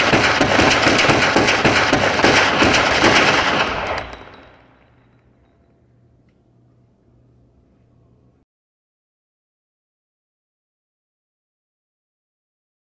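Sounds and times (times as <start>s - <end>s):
pistol firing rapid shots: 0.0s - 4.6s
gunshot echo: 0.0s - 4.7s.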